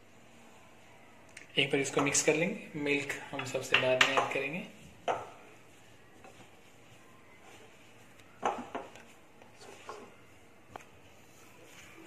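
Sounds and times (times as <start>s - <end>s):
hand rubbing dough: 0.0s - 12.0s
glass bowl scuffs and knocks: 8.4s - 9.0s.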